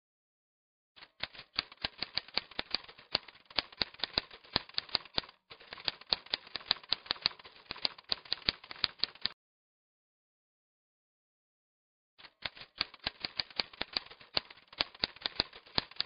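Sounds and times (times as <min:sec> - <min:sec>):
typewriter keys clacking: 0:01.0 - 0:09.3, 0:12.2 - 0:16.0.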